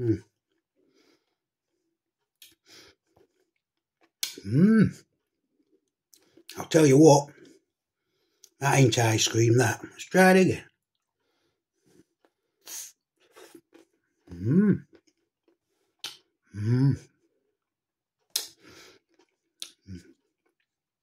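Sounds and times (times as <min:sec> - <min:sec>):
man humming mm: 0:04.4 - 0:05.0, 0:14.3 - 0:14.8, 0:16.5 - 0:17.1
mouth chewing noises: 0:11.8 - 0:16.4, 0:17.1 - 0:20.8
breathing through nose: 0:18.6 - 0:19.0.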